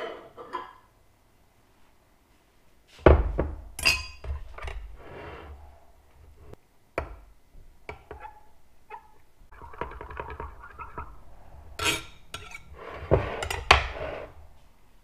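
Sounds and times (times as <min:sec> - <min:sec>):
knife scraping glass cup: 0:11.8 - 0:14.3.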